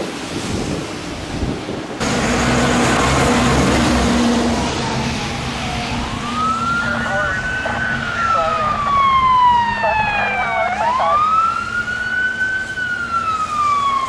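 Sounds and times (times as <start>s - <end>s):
wind on microphone: 0.0s - 2.0s
road traffic: 0.0s - 14.0s
vehicle engine humming: 2.0s - 13.8s
emergency vehicle siren: 2.0s - 14.0s.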